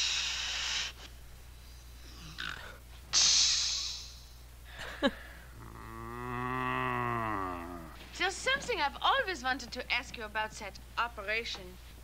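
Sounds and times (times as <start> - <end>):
woman hissing through teeth: 3.1 - 4.2.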